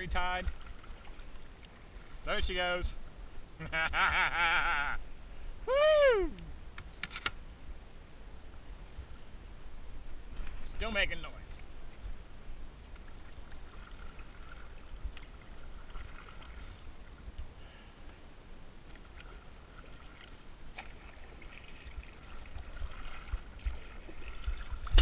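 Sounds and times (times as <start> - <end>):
paddle splashing through water: 0.4 - 2.3, 12.8 - 17.2, 18.8 - 25.0
wind rumble on microphone: 21.7 - 25.0.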